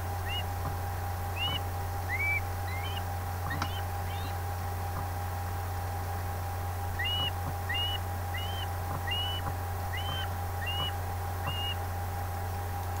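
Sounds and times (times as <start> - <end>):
low hum: 0.0 - 13.0
osprey chirping: 0.2 - 0.6, 1.3 - 4.4, 6.9 - 11.8.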